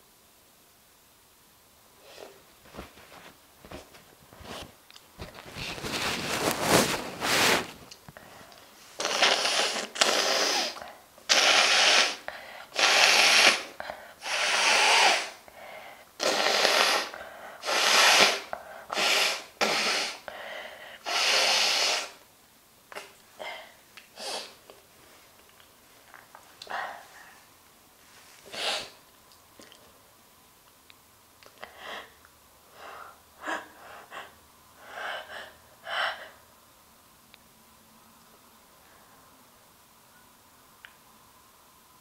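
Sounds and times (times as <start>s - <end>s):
woman blowing air through nose: 8.9s - 15.5s, 16.2s - 22.2s, 24.1s - 24.6s, 28.4s - 29.0s.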